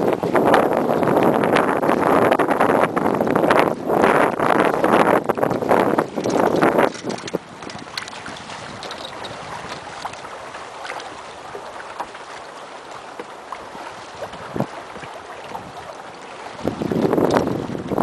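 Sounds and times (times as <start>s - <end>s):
water lapping against boat hull: 0.0s - 18.0s
small splashes: 5.5s - 18.0s.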